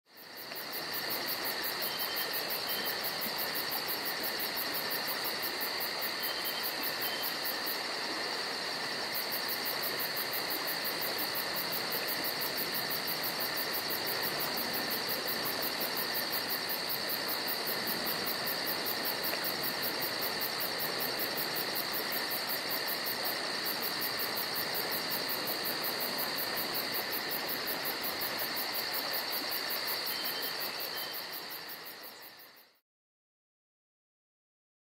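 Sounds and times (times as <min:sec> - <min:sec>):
crickets and insects chirring: 0:00.1 - 0:32.8.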